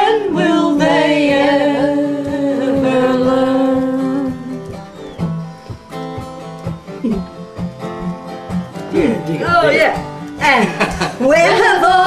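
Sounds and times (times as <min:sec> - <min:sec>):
group singing folk song: 0:00.0 - 0:06.6, 0:11.2 - 0:12.0
acoustic guitar playing: 0:00.0 - 0:12.0.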